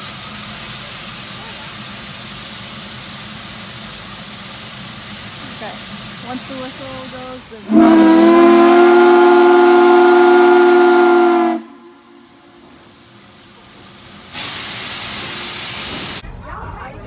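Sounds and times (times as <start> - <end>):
loud steam hiss: 0.0 - 16.2
steam locomotive whistle: 7.6 - 12.5.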